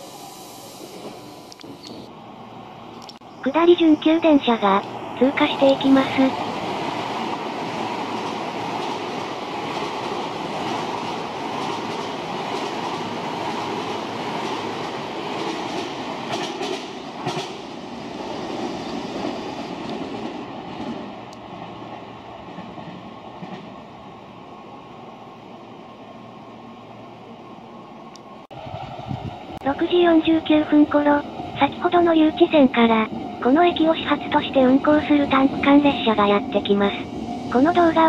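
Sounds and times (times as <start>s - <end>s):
train wheels rumbling on rails: 4.2s - 23.8s.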